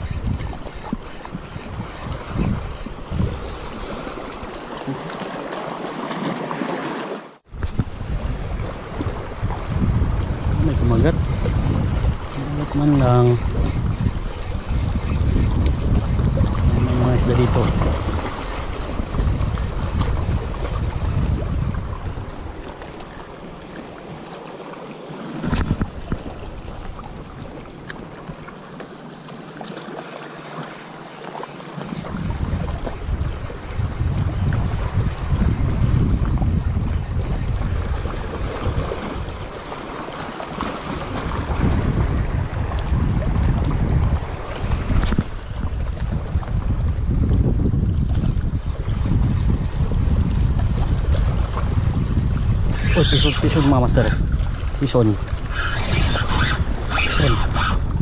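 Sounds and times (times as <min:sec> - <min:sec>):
wind rumbling on microphone: 0:00.0 - 0:05.2, 0:07.4 - 0:24.3, 0:25.2 - 0:28.5, 0:31.8 - 0:58.0
small waves lapping on rocks: 0:00.0 - 0:09.7, 0:15.3 - 0:35.4, 0:37.2 - 0:47.0.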